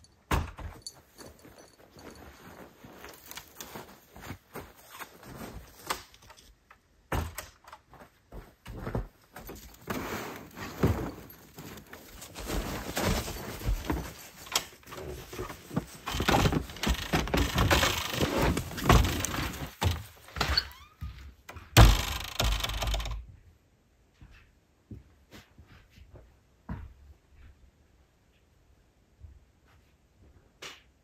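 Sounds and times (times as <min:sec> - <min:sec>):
gear rustling and clattering: 0:00.8 - 0:06.6, 0:08.8 - 0:20.6
loud thunk: 0:21.8 - 0:22.7.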